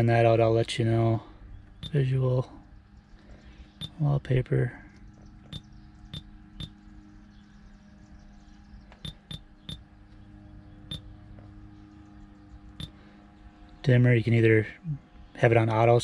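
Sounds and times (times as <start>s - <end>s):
steady low hum: 0.0s - 16.0s
touchscreen key-press beeps: 9.0s - 9.8s.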